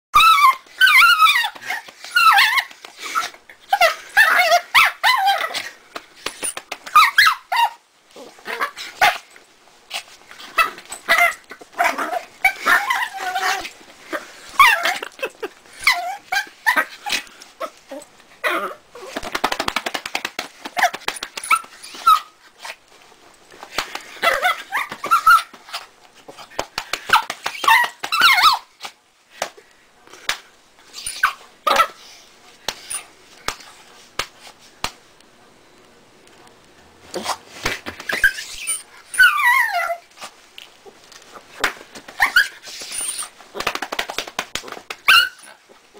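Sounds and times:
small dog screeching and squealing: 0.2s - 5.7s, 6.4s - 9.2s, 9.9s - 13.8s, 14.5s - 15.0s, 15.8s - 19.2s, 20.8s - 22.8s, 24.2s - 25.9s, 27.1s - 28.9s, 30.9s - 32.0s, 38.0s - 40.1s, 42.2s - 43.4s, 45.0s - 45.6s.

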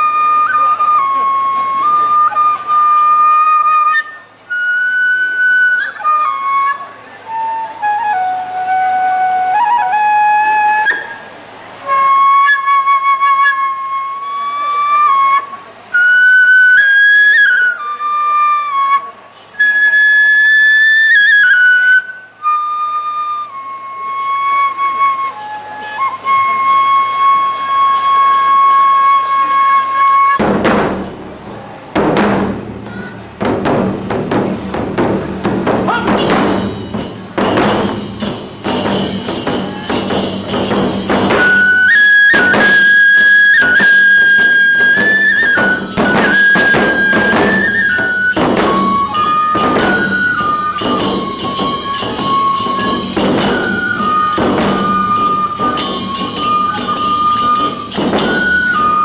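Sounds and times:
bamboo flute melody: 0.0s - 59.0s
brass hand cymbals clashing: 19.3s - 19.6s, 26.2s - 59.0s
large taiko drums beating: 30.1s - 59.0s.

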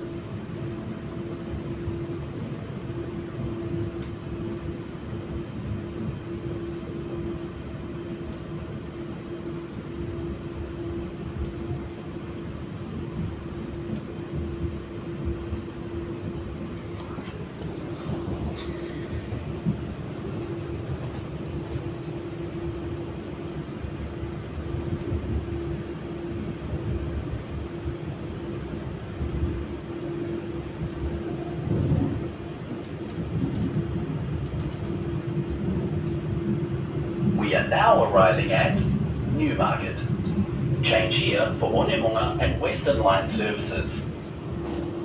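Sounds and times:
constant hum: 0.0s - 45.0s
train wheels rumbling on rail: 0.0s - 45.0s
faint clicks: 34.4s - 36.2s.

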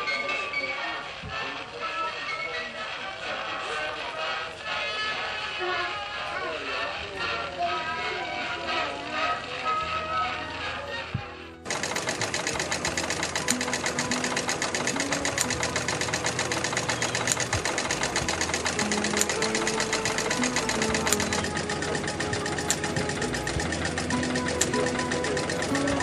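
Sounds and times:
model engines clattering: 6.2s - 10.8s, 11.6s - 26.0s
loud mechanical click: 11.7s - 23.1s.

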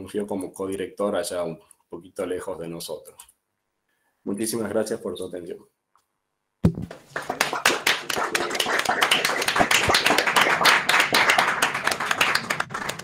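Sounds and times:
knock: 6.6s - 7.0s
many hands clapping: 6.7s - 13.0s.

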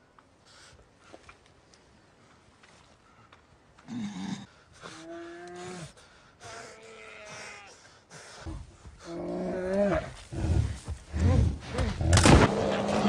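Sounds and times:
bear growling and roaring: 9.0s - 13.0s.

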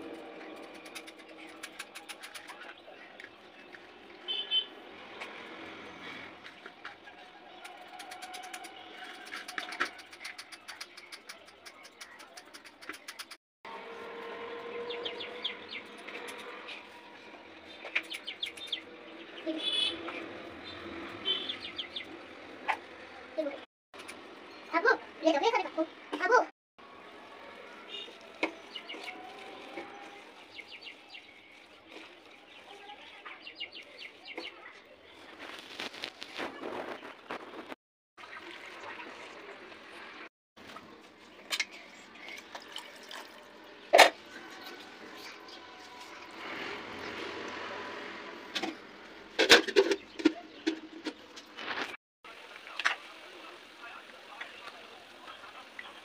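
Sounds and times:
cabbage rustling and crunching: 27.9s - 32.8s, 35.2s - 37.7s.

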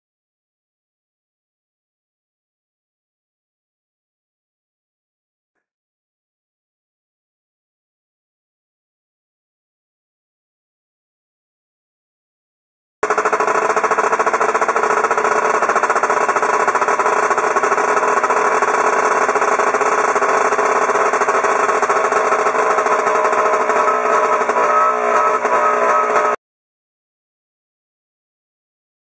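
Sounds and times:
outboard engine running: 13.0s - 26.4s.

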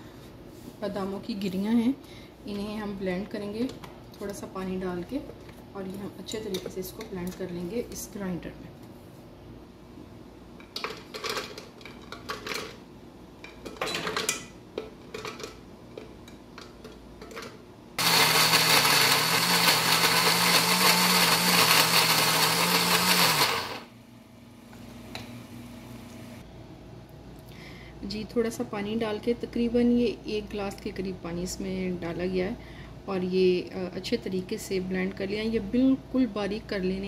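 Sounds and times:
electric blender grinding: 18.0s - 23.9s.

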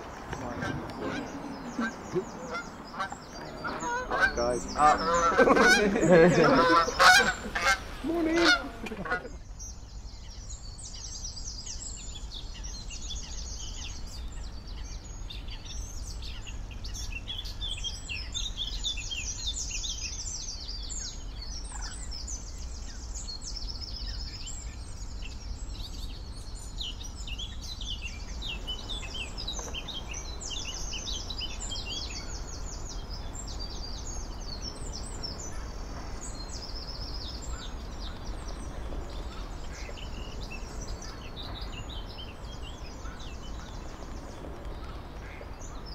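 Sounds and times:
songbirds singing and chirping: 0.0s - 45.9s.

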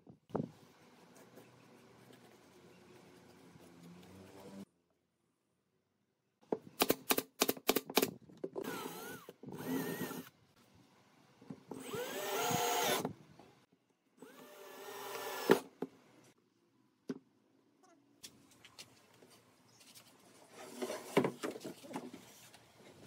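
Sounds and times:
cordless drill driving screws: 8.6s - 10.3s, 11.8s - 13.2s, 14.2s - 15.7s.

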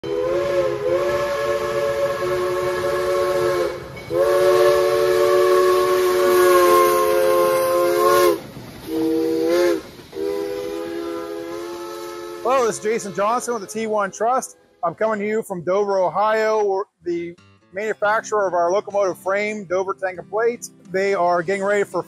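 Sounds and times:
steam locomotive chime whistle: 0.0s - 14.8s
steady hiss: 4.9s - 13.1s.

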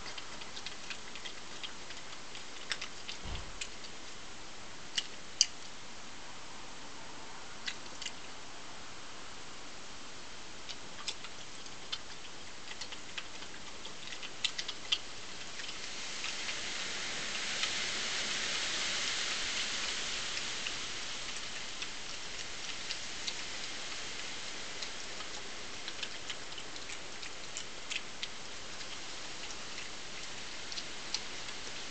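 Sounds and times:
teeth crunching on food: 0.0s - 4.0s, 10.7s - 16.4s, 21.3s - 31.8s
steady hiss: 0.0s - 31.9s.

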